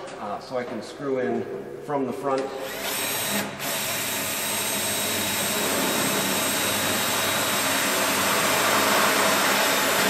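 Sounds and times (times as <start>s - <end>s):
power drill driving screw: 2.4s - 10.0s.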